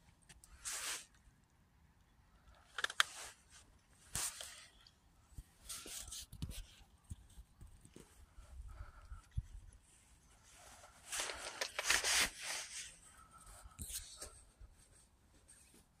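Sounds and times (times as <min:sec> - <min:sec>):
short rustling bursts: 0:09.9 - 0:15.9.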